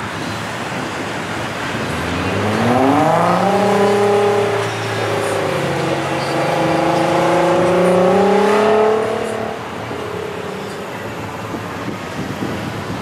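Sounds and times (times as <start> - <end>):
car engine accelerating: 0.8 - 11.1.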